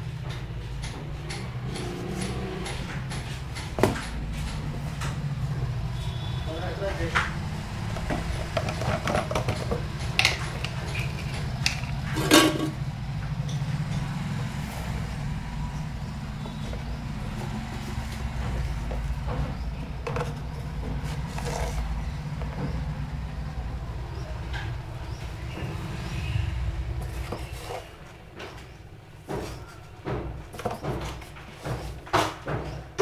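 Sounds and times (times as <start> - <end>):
utensils knocking and clinking: 6.9 - 14.1, 16.0 - 23.0.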